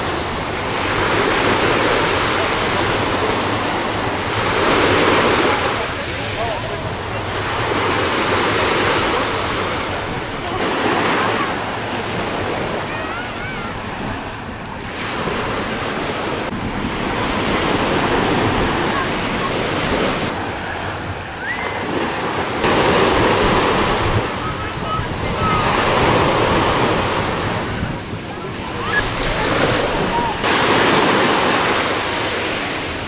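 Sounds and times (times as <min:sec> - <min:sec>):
surf washing onto beach: 0:00.0 - 0:33.0
faint voices of people: 0:00.9 - 0:16.1, 0:17.1 - 0:33.0
wind on microphone: 0:22.5 - 0:33.0.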